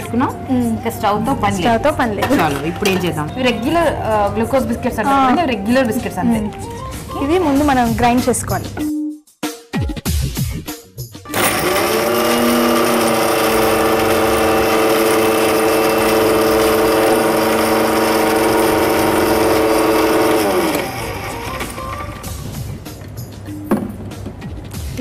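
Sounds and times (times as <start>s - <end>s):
mixer grinder motor grinding: 11.3s - 22.7s.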